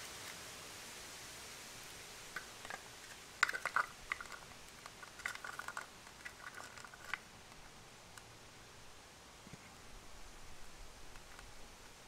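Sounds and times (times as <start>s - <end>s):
tape crackling and clicking: 2.4s - 8.3s, 11.1s - 12.0s.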